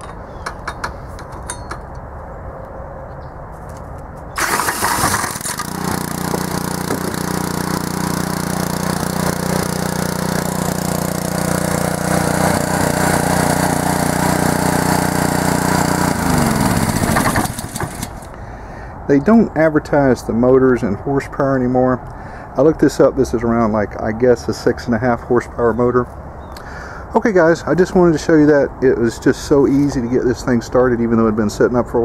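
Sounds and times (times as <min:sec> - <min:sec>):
small engine running: 0:04.4 - 0:18.3.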